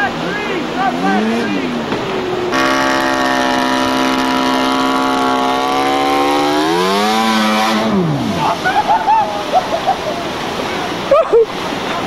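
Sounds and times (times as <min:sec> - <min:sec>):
snowmobile engine revving: 0:00.1 - 0:09.2.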